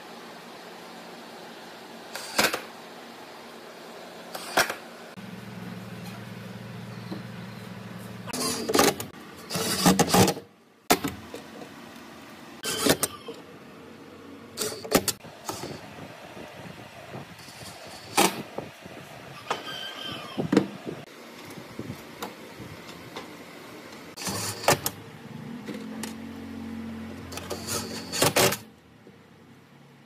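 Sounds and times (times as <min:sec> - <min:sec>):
steady low hum: 0:00.0 - 0:19.4.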